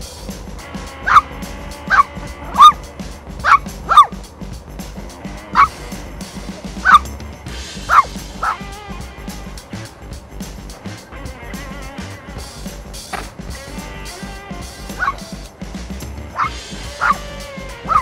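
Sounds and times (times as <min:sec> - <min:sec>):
background music: 0:00.0 - 0:18.0
dog barking: 0:01.9 - 0:02.8, 0:03.4 - 0:04.1, 0:06.8 - 0:07.1, 0:07.9 - 0:08.6, 0:15.0 - 0:15.2, 0:16.4 - 0:17.2.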